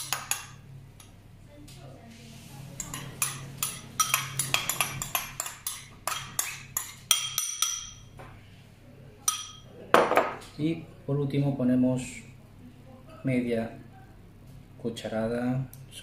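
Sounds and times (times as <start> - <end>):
spoon clinking on glass bowl: 2.8 - 8.1, 9.3 - 9.7.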